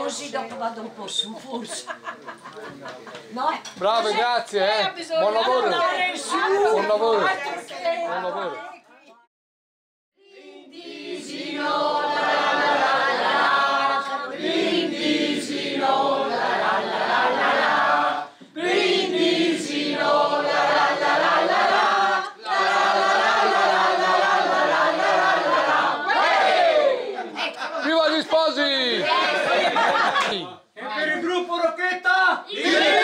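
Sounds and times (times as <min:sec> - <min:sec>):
group of people singing: 0:10.2 - 0:27.4, 0:32.5 - 0:33.0.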